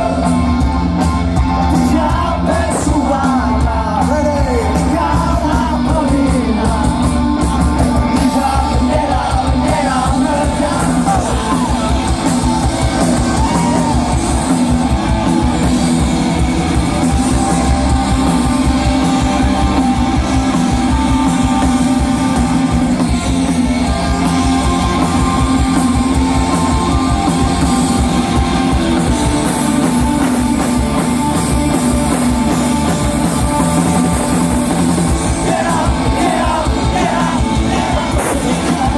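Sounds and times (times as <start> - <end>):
live rock band playing: 0.0 - 38.9
loud guitars: 0.0 - 38.9
lead singer singing: 1.4 - 15.6, 32.9 - 38.9.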